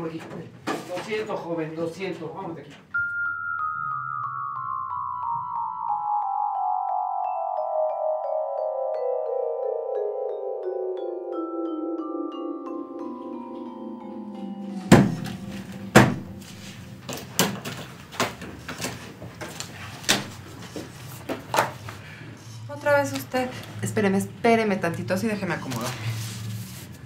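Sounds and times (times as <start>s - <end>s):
descending mallet percussion notes: 2.9s - 17.4s
sharp thump: 14.9s - 16.5s.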